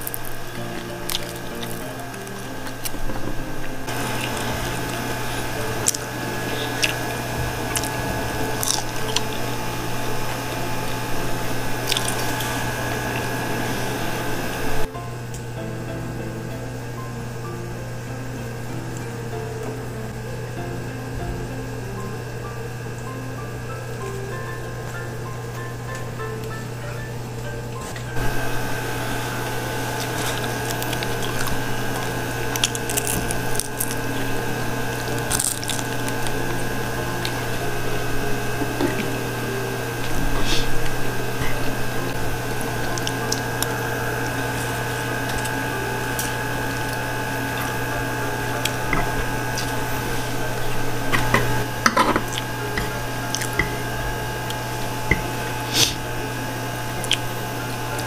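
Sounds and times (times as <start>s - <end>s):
wet chewing of noodles: 0.0s - 14.9s, 28.2s - 56.1s, 56.9s - 58.0s
steady low hum: 0.0s - 58.0s.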